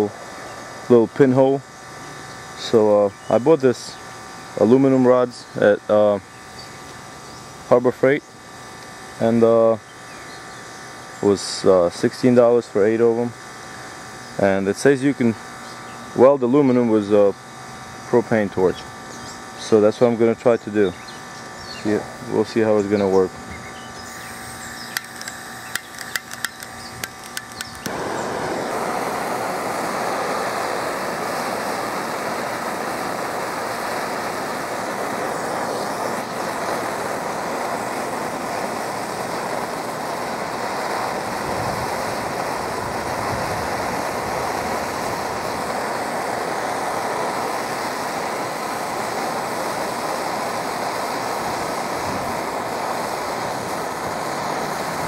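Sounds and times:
propane torch burning: 0.0 - 55.0
clicks: 24.9 - 28.0.

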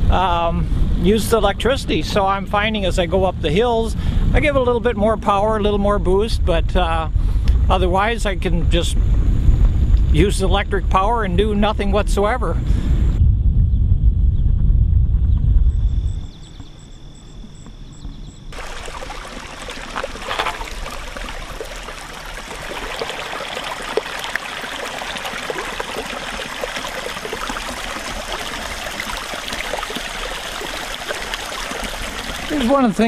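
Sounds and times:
creek water running over stones: 18.5 - 33.0.

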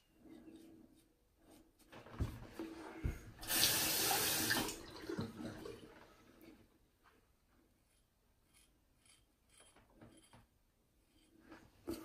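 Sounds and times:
sink tap running: 3.4 - 4.8.

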